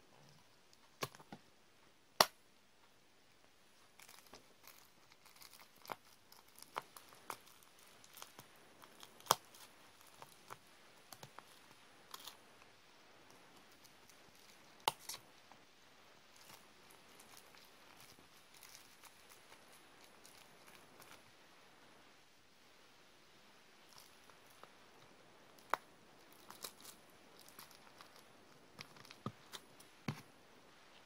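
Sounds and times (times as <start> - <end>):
plastic crinkling: 3.8 - 12.7, 16.3 - 21.3, 23.9 - 31.0
bubble wrap popping: 3.8 - 15.4, 16.3 - 21.4, 23.8 - 30.4.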